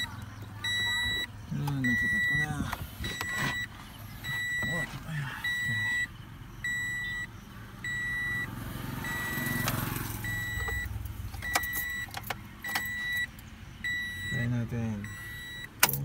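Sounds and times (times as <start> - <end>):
dashboard warning chime beeping: 0.0 - 16.0.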